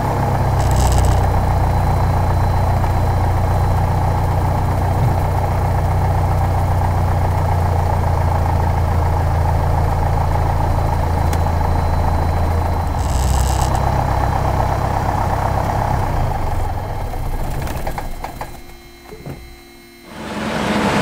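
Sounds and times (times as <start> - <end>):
propeller plane engine idling: 0.0 - 21.0.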